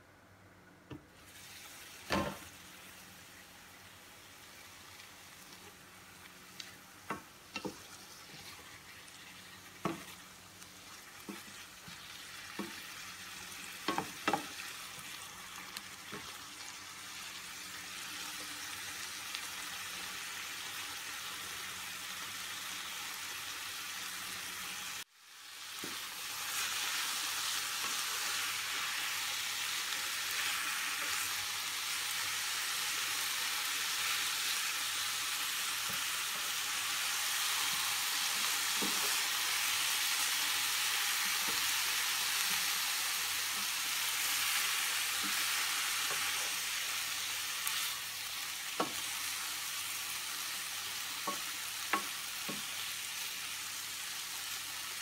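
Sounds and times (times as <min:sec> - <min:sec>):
food sizzling in a frying pan: 0:01.2 - 0:55.0.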